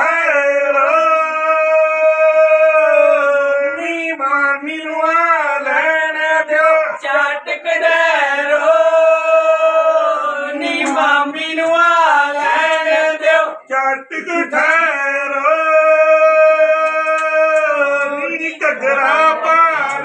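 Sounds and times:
women singing folk song: 6.6s - 13.7s.

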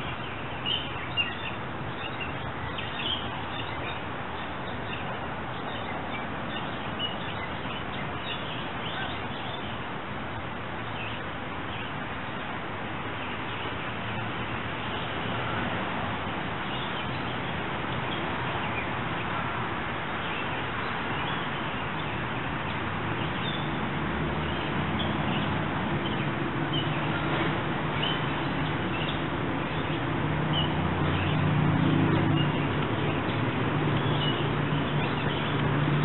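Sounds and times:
creek water flowing: 0.0s - 36.0s
small birds chirping: 24.4s - 36.0s.

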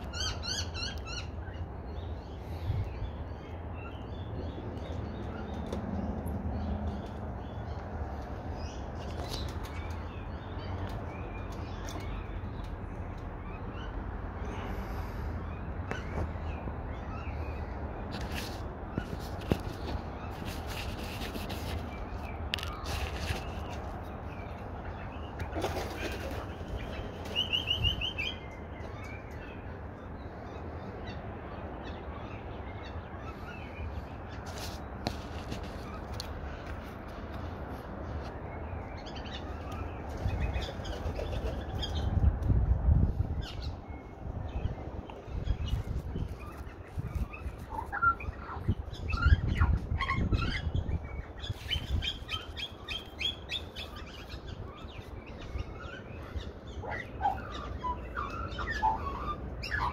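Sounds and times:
magpies chirping: 0.0s - 5.8s, 15.9s - 36.7s, 43.4s - 59.9s
faint outdoor background: 0.0s - 59.9s.

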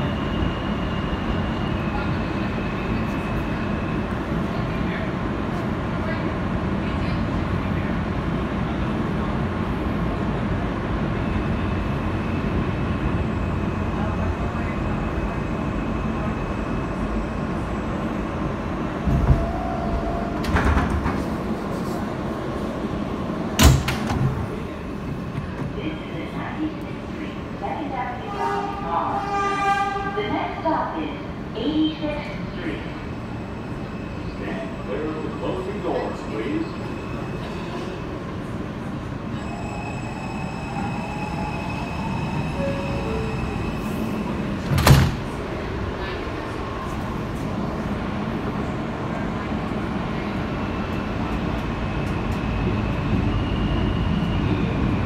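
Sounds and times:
subway train wheels rumbling: 0.0s - 55.0s
train thump: 20.4s - 21.3s, 23.5s - 24.5s, 44.6s - 45.4s.

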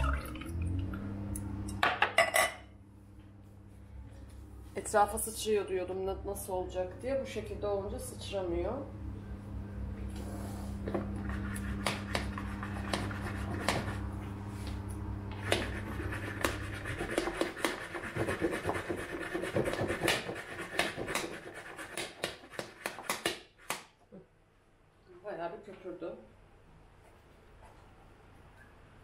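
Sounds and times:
low hum: 0.0s - 17.1s.

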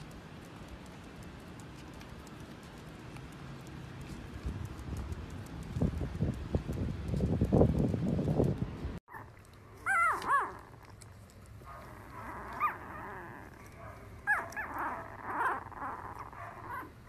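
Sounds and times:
newborn puppies squeaking: 9.1s - 10.7s, 11.8s - 17.0s.

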